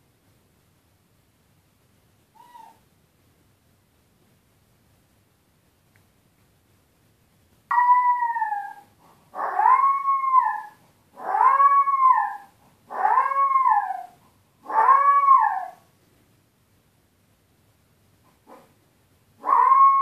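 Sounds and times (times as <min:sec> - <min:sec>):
puppy wailing: 0:02.4 - 0:02.8, 0:07.7 - 0:15.8, 0:19.4 - 0:20.0.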